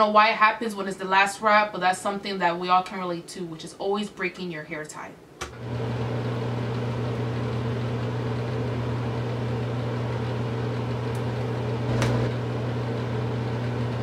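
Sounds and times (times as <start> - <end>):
low mechanical hum: 5.2 - 14.0.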